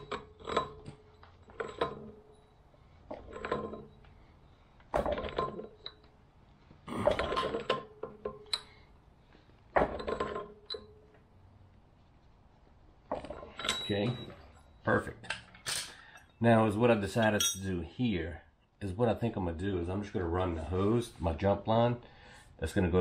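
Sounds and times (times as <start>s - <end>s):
pliers clanking on metal fitting: 17.2s - 17.7s.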